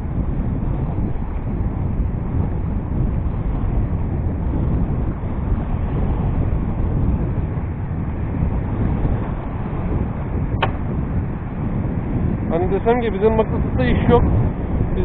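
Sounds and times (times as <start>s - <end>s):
wind buffeting microphone: 0.0s - 15.0s
sharp click: 10.6s - 10.9s.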